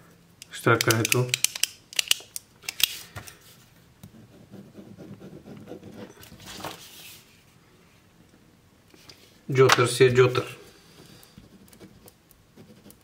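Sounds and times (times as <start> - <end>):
pen scratching on paper: 4.1 - 6.2
paper rustling: 6.2 - 7.4.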